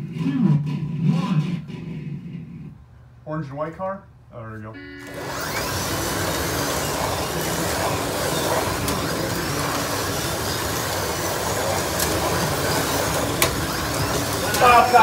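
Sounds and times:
slot car motors whirring: 4.8 - 15.0.

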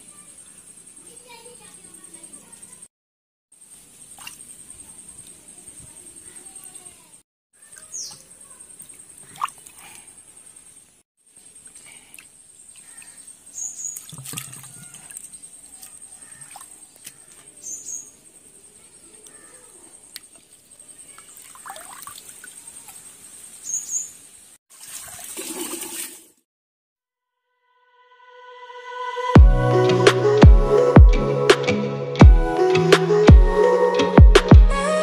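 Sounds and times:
water splashing and trickling: 3.7 - 5.7, 7.6 - 10.3, 11.2 - 17.7, 19.3 - 23.6, 24.6 - 26.5.

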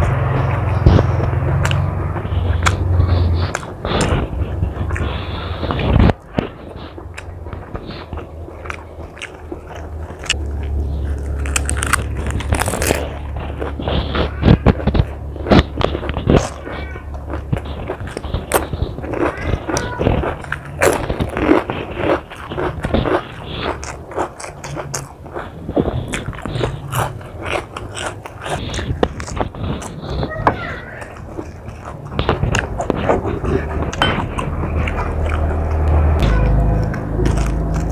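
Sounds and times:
crunchy chewing: 0.0 - 37.9
low steady hum: 0.0 - 37.9.

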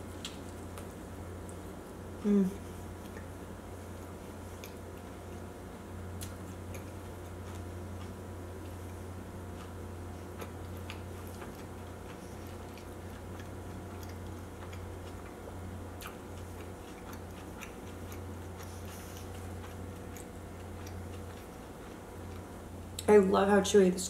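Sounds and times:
steady low hum: 0.0 - 24.0
close chewing with wet mouth clicks: 4.0 - 5.4, 6.2 - 23.1.

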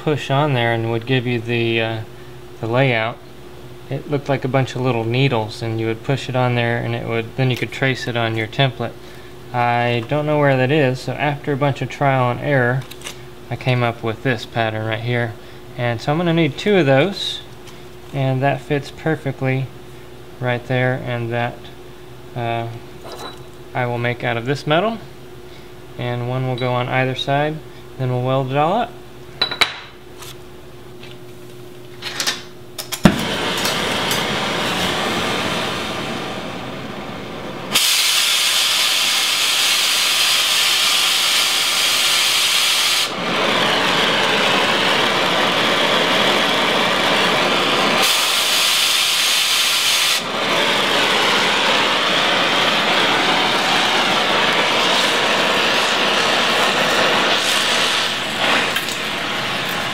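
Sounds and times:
sharp pop: 33.0 - 33.3
cutting torch hissing: 33.1 - 59.9.

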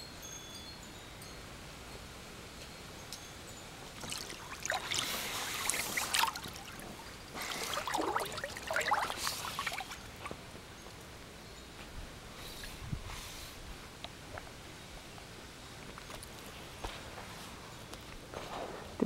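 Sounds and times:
water splashing in a pool: 4.0 - 10.2.

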